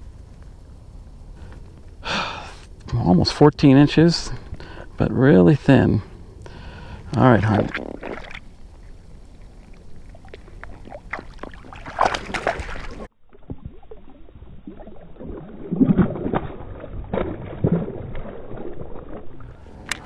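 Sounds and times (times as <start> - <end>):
water splashing and sloshing: 6.8 - 20.0.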